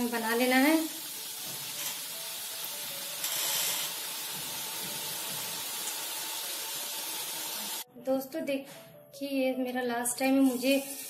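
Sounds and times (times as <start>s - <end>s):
batter frying in hot oil: 0.0s - 7.8s.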